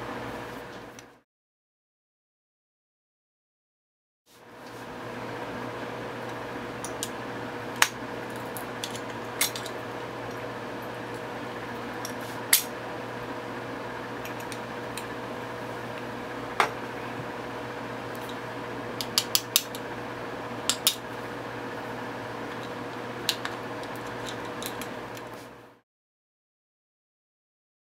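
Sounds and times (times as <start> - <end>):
steady low hum: 4.4 - 25.8.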